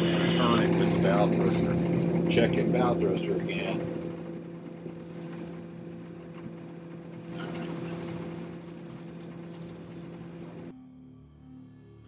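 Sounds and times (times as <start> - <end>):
diesel engine running at low revs: 0.0 - 12.0.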